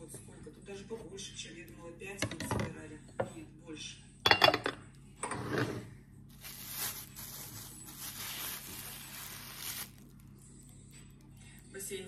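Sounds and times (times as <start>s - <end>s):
plastic bag crinkling: 6.3s - 10.4s.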